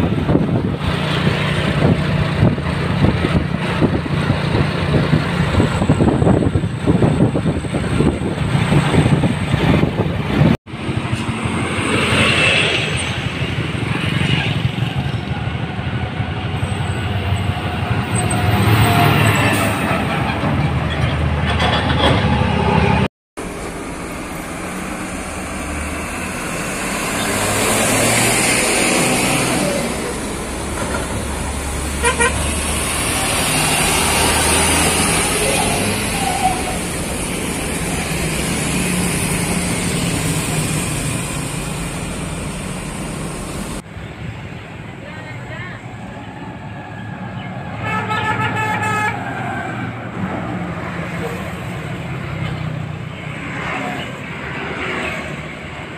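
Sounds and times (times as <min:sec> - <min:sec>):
trucks driving past: 0:00.0 - 0:55.9
vehicle horn: 0:32.0 - 0:32.6, 0:47.8 - 0:49.3.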